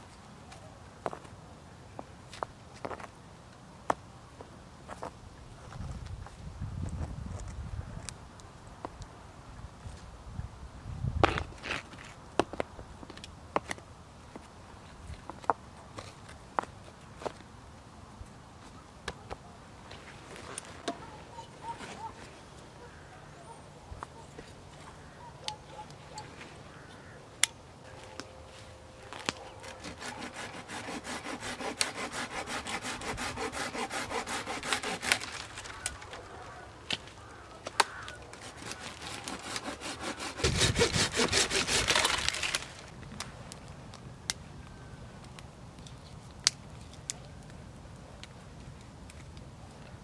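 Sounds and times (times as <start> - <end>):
hand saw cutting branch: 29.6 - 35.9, 38.3 - 42.8.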